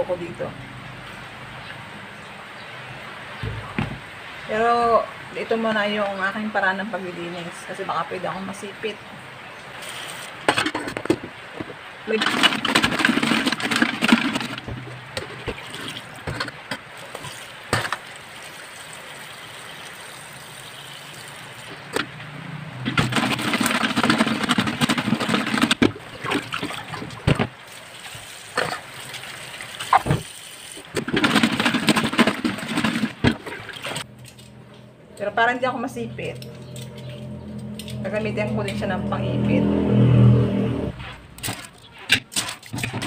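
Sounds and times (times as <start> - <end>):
water sloshing in a sink basin: 12.1 - 19.2, 22.9 - 34.5.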